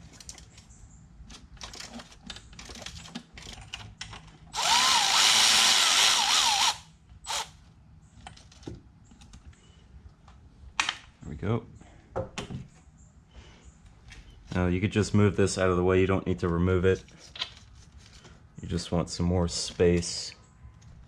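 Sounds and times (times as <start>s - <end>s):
power tool spinning out bolt: 4.6s - 7.5s.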